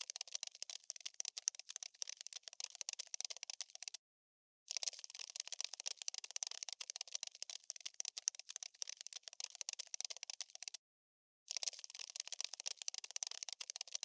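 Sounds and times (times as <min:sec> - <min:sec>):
cockroach skittering: 0:00.0 - 0:04.0, 0:04.7 - 0:10.8.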